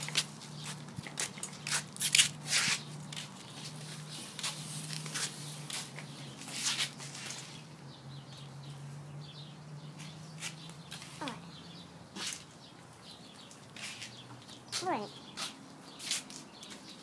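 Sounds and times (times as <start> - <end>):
sandal footsteps on concrete: 0.0 - 7.5, 12.1 - 17.0.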